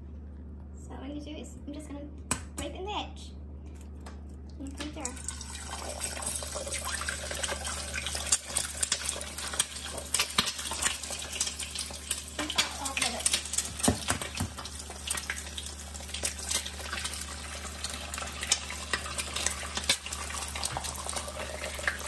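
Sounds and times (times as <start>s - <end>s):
eggs sizzling in hot oil: 4.9s - 22.0s.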